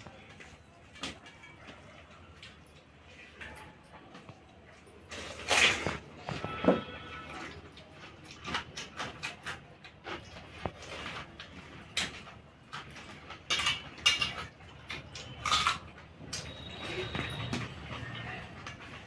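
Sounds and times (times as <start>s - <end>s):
wet chewing and lip-smacking: 7.2s - 13.4s
fingers clinking on steel plates: 11.9s - 17.8s.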